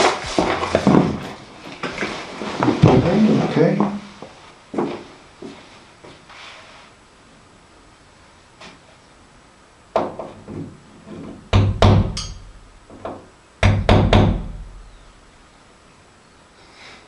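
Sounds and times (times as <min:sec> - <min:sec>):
hammer striking nails: 0:11.5 - 0:14.6.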